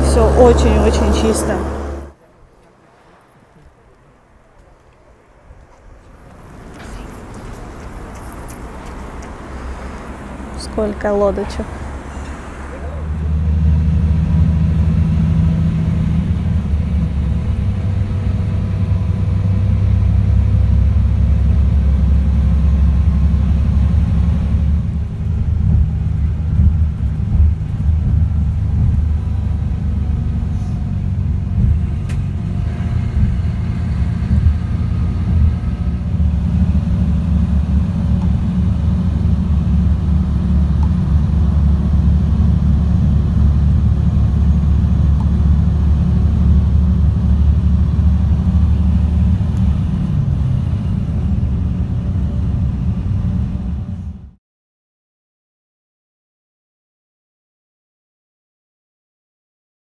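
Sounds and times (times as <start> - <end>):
low road and engine rumble: 0.0 - 54.4.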